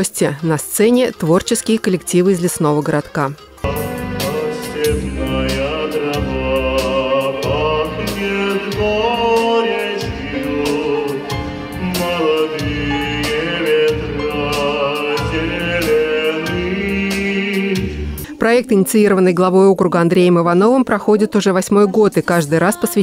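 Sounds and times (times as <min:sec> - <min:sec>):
instrumental music with beat: 0:03.4 - 0:18.3
man singing into microphone: 0:03.6 - 0:18.2.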